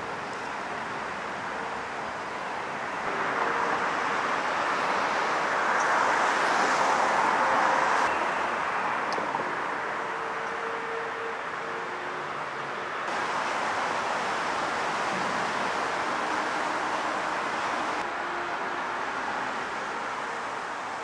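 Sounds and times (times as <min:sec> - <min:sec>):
subway train rushing overhead: 0:00.0 - 0:21.0.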